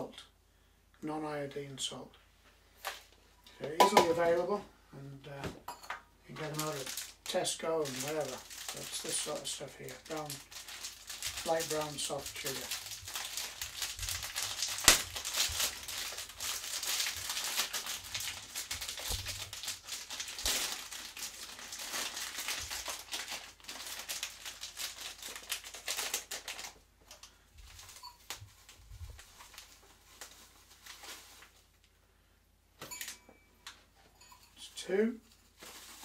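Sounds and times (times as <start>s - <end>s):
plastic packet crinkling: 6.3s - 31.9s, 35.2s - 36.0s.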